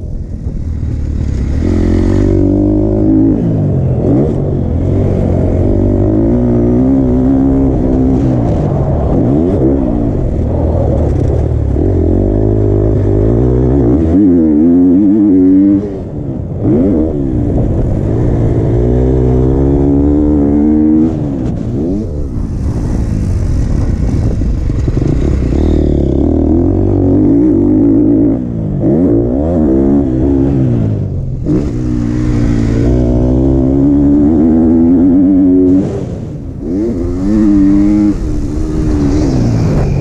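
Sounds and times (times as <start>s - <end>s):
motocross engine revving: 1.2s - 10.2s, 24.7s - 40.0s.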